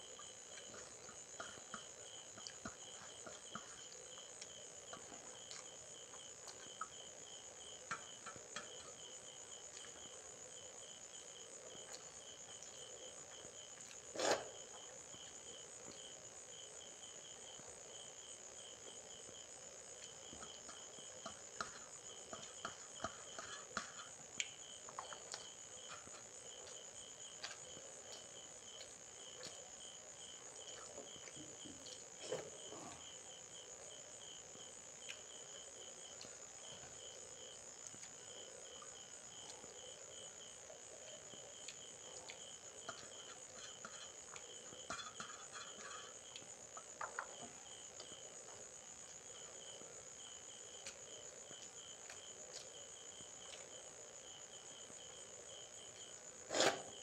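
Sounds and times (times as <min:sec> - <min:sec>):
crickets chirping: 0:00.0 - 0:57.0
fingers and rice tapping steel plate: 0:42.8 - 0:46.1.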